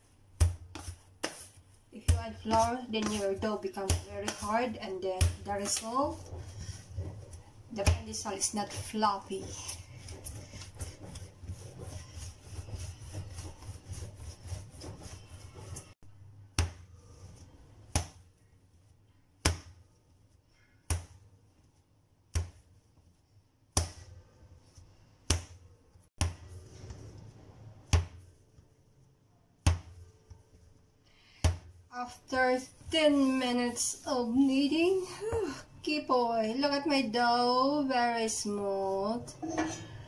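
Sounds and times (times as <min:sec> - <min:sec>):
hands rubbing dough: 0:00.0 - 0:40.0
dough thumping on stone counter: 0:00.3 - 0:15.8, 0:16.4 - 0:16.9, 0:17.8 - 0:18.4, 0:19.4 - 0:19.9, 0:20.7 - 0:21.3, 0:22.3 - 0:22.8, 0:23.7 - 0:24.2, 0:25.2 - 0:25.6, 0:26.2 - 0:26.6, 0:27.8 - 0:28.4, 0:29.6 - 0:30.5, 0:31.3 - 0:31.8.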